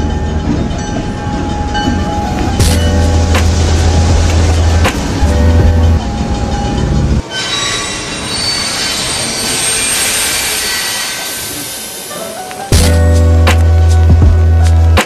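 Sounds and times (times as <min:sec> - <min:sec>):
music with heavy bass: 0:02.6 - 0:06.0, 0:12.7 - 0:15.0.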